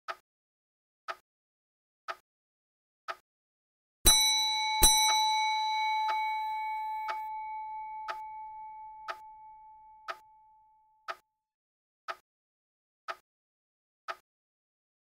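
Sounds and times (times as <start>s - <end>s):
clock ticking: 4.1s - 10.2s
clock bell striking: 4.1s - 10.4s.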